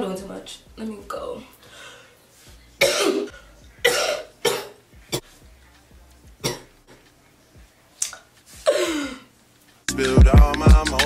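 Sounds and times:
woman coughing: 2.8 - 5.2, 6.4 - 6.7, 8.6 - 9.3.

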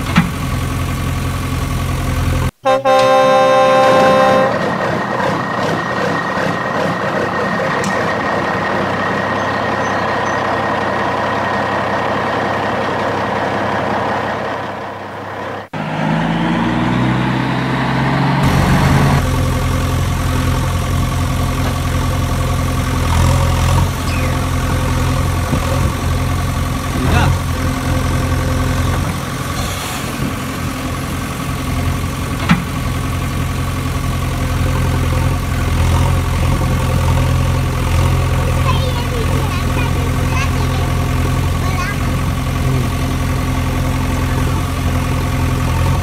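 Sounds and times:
truck engine hum: 0.0 - 46.0
engine starting and idling: 4.5 - 15.8.

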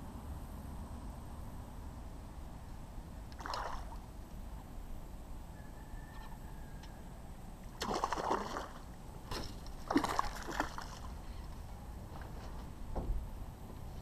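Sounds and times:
fish splashing in water: 3.4 - 4.0, 7.8 - 11.2.

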